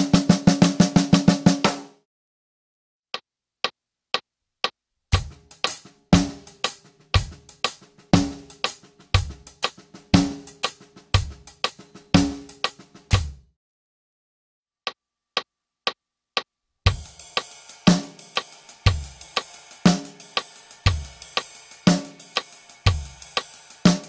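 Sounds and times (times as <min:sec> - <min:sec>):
drum kit playing a groove: 0:00.0 - 0:01.9, 0:05.1 - 0:13.5, 0:16.9 - 0:24.0.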